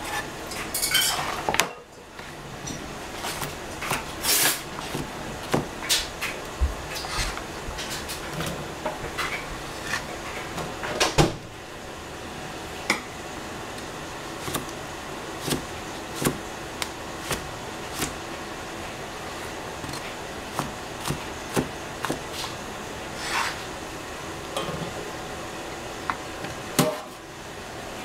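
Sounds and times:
cleaver chopping on plastic board: 4.8s - 6.1s, 14.4s - 14.8s, 15.4s - 18.2s, 19.8s - 22.3s.

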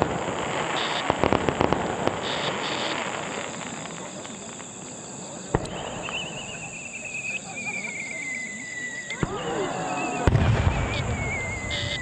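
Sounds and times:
crickets chirping: 0.0s - 12.0s
firework whistle: 0.0s - 12.0s
fireworks crackling: 0.0s - 12.0s
sharp firework bang: 10.2s - 12.0s.

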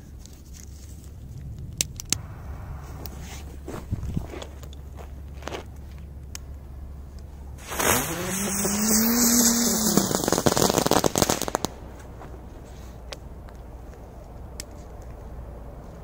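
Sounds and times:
firecracker hissing and whirring: 2.2s - 4.6s, 7.6s - 13.2s.

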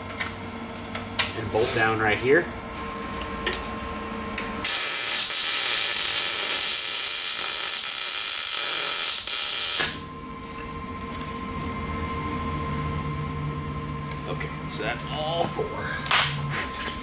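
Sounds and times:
welding arc crackling: 4.6s - 10.1s.

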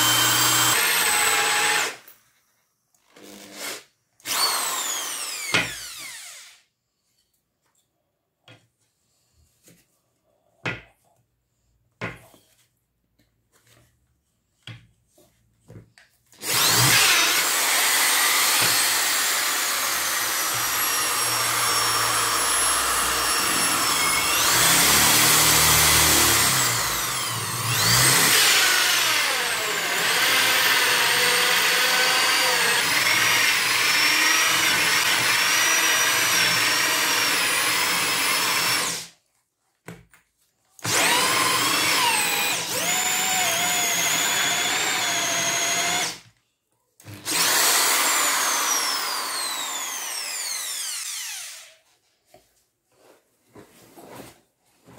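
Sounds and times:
hole saw drill cutting wood: 0.0s - 2.1s, 3.1s - 6.7s, 16.4s - 39.2s, 40.8s - 46.3s, 47.0s - 51.8s.

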